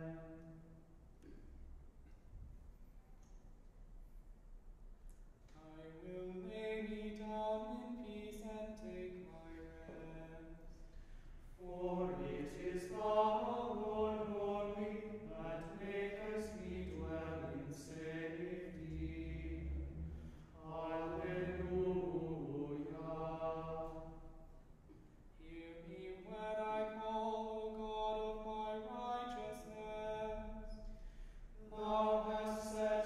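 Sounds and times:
men chanting a cappella: 0:11.6 - 0:24.0.

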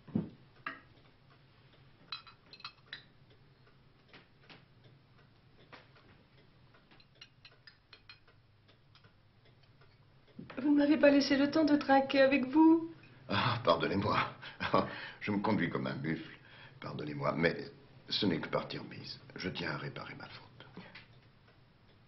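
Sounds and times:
glasses clinking: 0:02.1 - 0:03.1.

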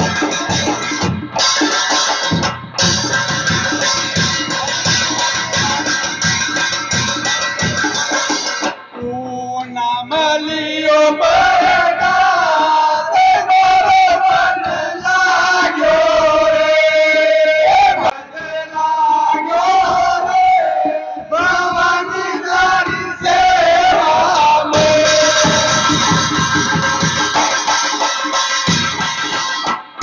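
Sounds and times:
voices singing devotional song: 0:09.0 - 0:26.8.

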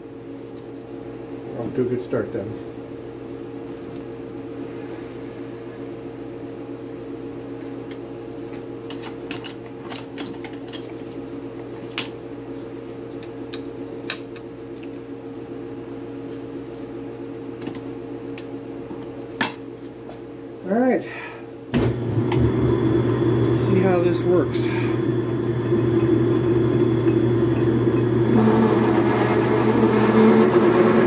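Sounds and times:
steady machine hum: 0:00.0 - 0:31.0.

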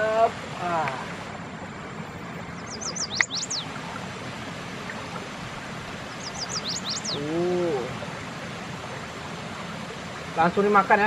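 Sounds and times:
river water rushing: 0:00.0 - 0:11.0
bird calling with sharp sweeping notes: 0:02.5 - 0:04.0, 0:06.0 - 0:07.4.

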